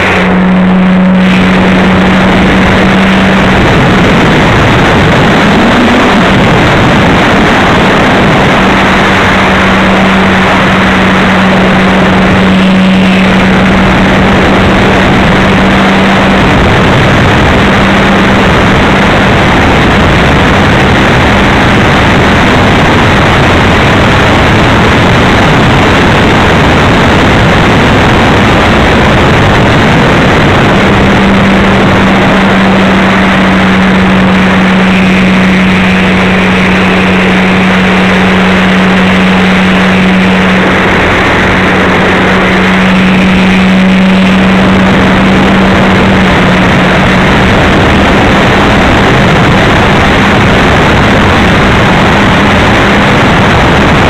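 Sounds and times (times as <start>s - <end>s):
wind noise: 0.0s - 54.0s.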